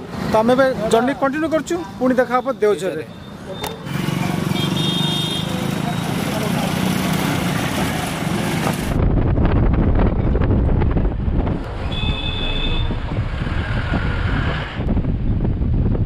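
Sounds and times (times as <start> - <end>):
vehicle engine and road noise: 0.0 - 16.0
wind buffeting microphone: 8.6 - 16.0.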